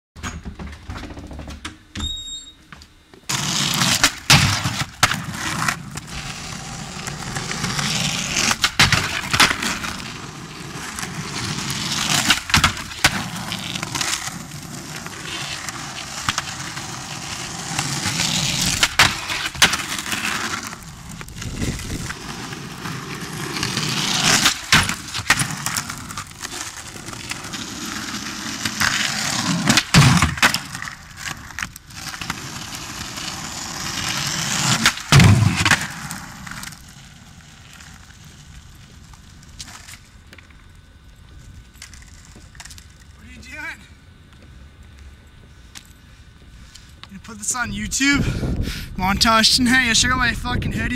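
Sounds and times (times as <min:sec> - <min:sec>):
skateboard wheels rolling on asphalt: 0:02.9 - 0:50.9
skateboard clacks and thuds: 0:08.4 - 0:10.0, 0:12.0 - 0:14.3.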